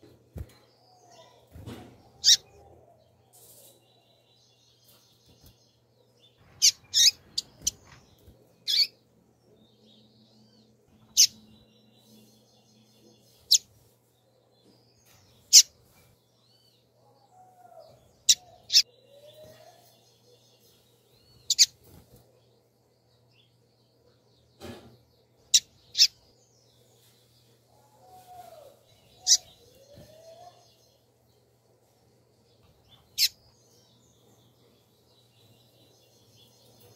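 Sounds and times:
bird chirping: 0.0 - 36.9.

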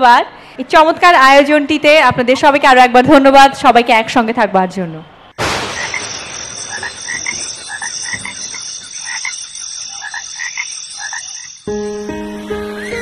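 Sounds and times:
frogs croaking: 5.7 - 12.0, 12.7 - 13.0.

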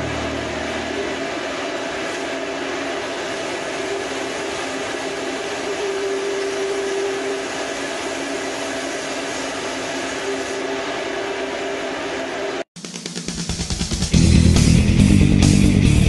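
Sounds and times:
steady hiss: 0.0 - 12.1
machine motor hum: 0.0 - 12.7.

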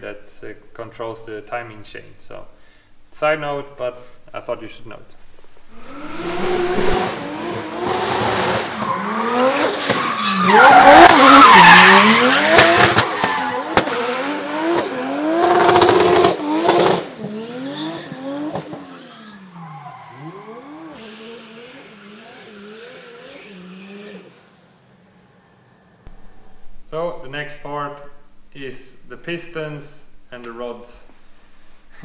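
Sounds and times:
car engine revving: 5.7 - 26.8
tyres squealing: 8.3 - 13.8, 17.9 - 24.4.

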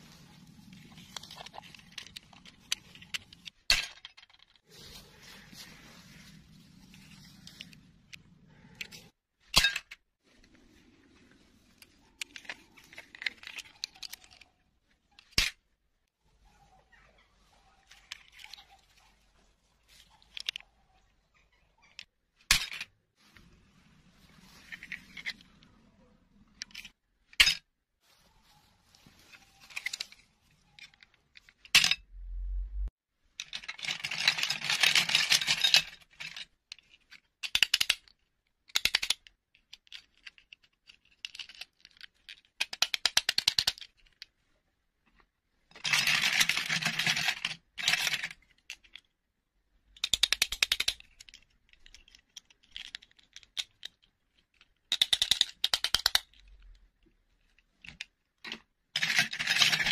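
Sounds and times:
plastic toy pieces clicking: 33.4 - 44.3, 45.8 - 49.1, 49.9 - 56.7, 57.8 - 59.9.

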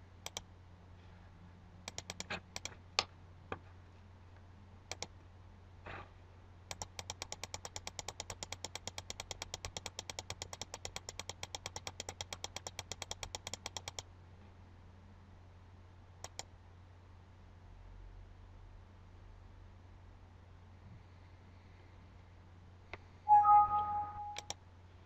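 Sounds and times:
mouse button clicking: 23.3 - 24.6.

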